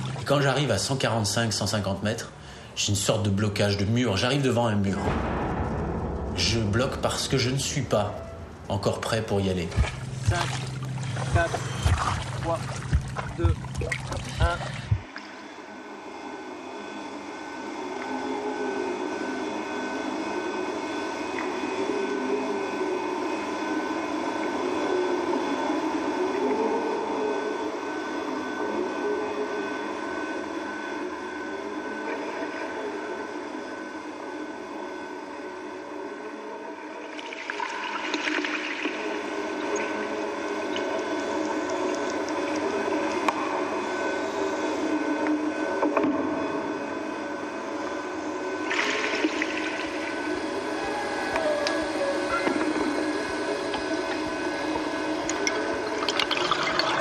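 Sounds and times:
steady hum tones: 0.0s - 57.0s
thin high whine: 0.0s - 57.0s
underwater rushing and whirring: 9.3s - 28.3s, 36.7s - 57.0s
underwater water rush: 9.6s - 15.4s, 48.6s - 51.2s, 52.6s - 57.0s.

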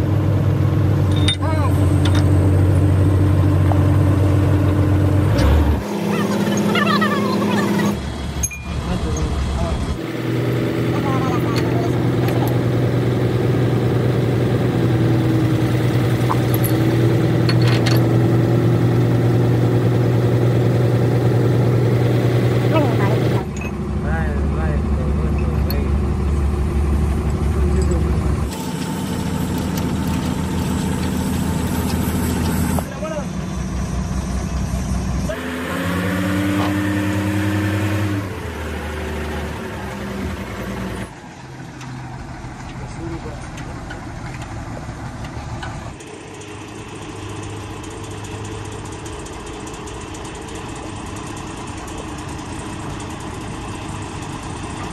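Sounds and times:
engine idling: 0.0s - 35.5s, 37.9s - 54.9s.

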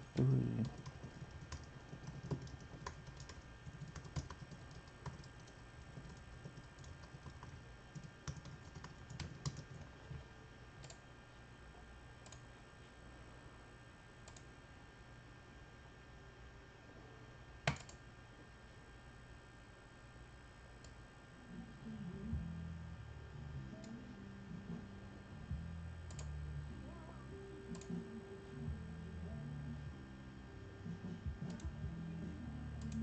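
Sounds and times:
low steady hum: 0.0s - 33.0s
keyboard typing clicks: 0.2s - 10.2s, 10.8s - 11.0s, 12.2s - 12.4s, 14.2s - 14.5s, 17.6s - 18.0s, 26.1s - 26.3s, 27.7s - 28.0s.

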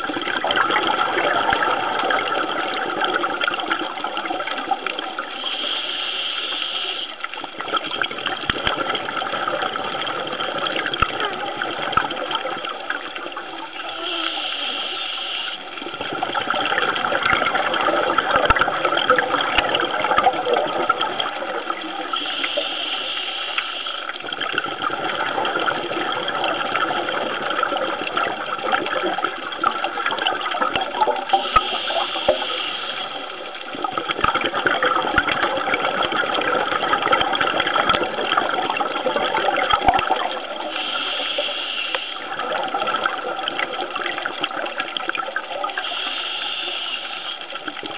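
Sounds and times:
underwater bubbling: 0.0s - 47.9s
short hiss: 40.8s - 42.2s, 45.8s - 47.5s.

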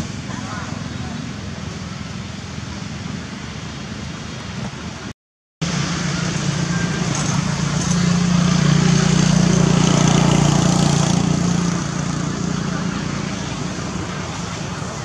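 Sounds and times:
motor engine humming: 5.6s - 15.0s.

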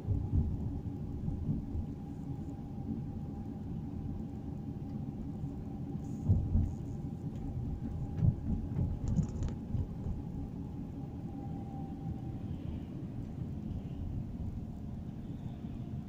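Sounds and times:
faint steady whine: 0.0s - 16.0s
car cabin road rumble: 6.0s - 10.8s.

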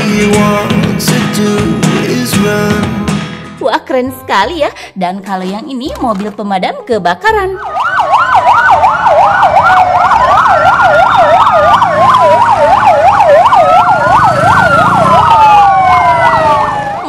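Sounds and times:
siren wails rising and falling: 7.4s - 17.0s
fire engine sirens yelping: 7.5s - 17.0s.

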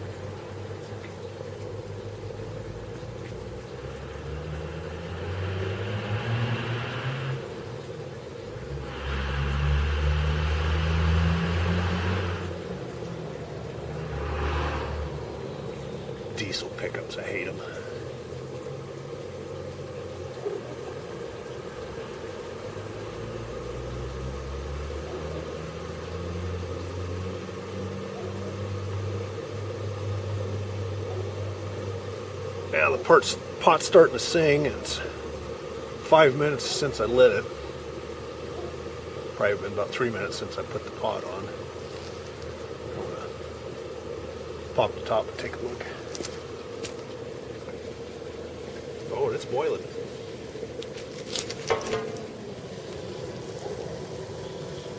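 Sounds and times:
diesel truck engine droning: 0.0s - 19.6s, 21.6s - 41.8s
blower fan humming: 0.0s - 54.9s.

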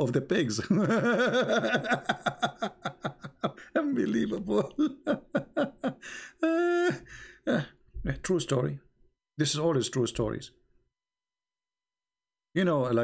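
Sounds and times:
man laughing: 0.6s - 7.7s.

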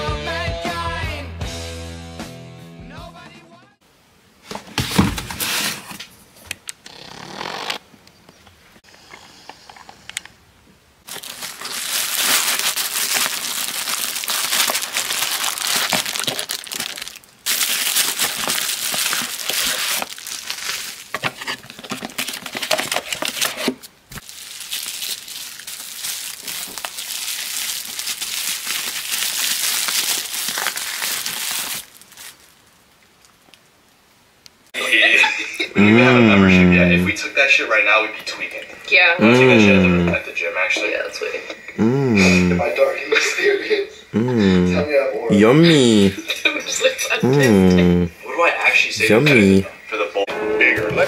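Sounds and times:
crinkling crackling noise: 11.0s - 34.8s.

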